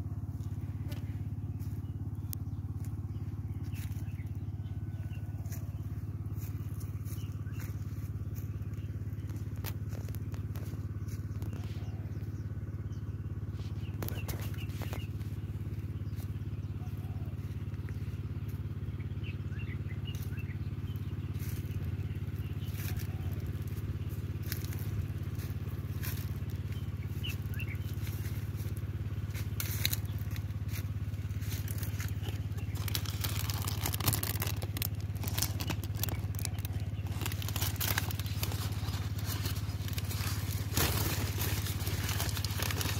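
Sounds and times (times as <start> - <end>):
motor droning: 0.0 - 42.9
paper bags rustling: 31.7 - 42.9.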